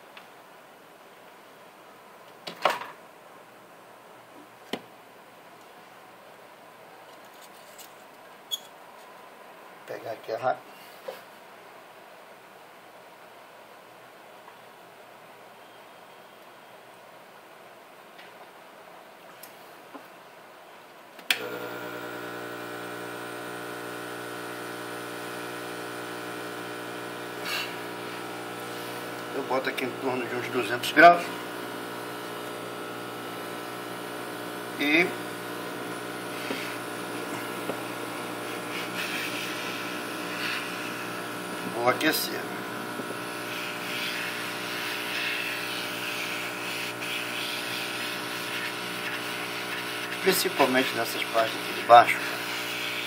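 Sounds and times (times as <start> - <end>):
hot air blower fan whirring: 21.4 - 53.0.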